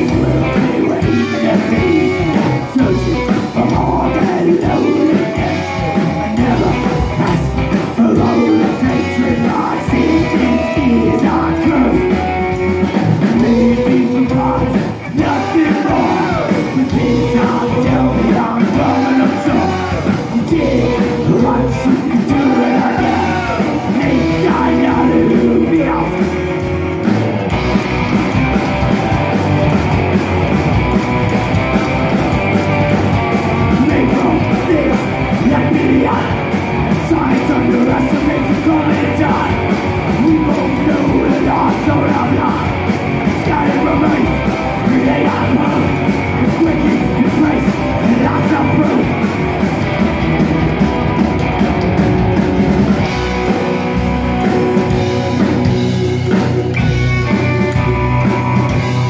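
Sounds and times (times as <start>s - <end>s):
rockabilly band playing: 0.0s - 59.0s.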